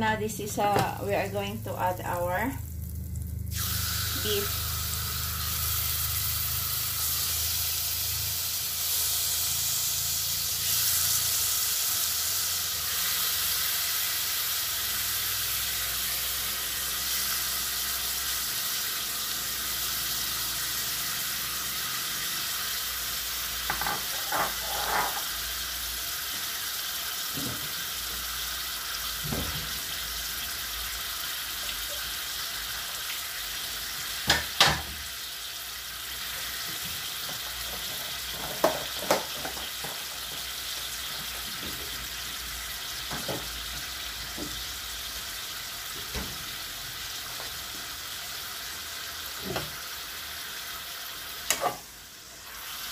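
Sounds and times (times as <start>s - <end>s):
meat sizzling in a pot: 0.0s - 52.9s.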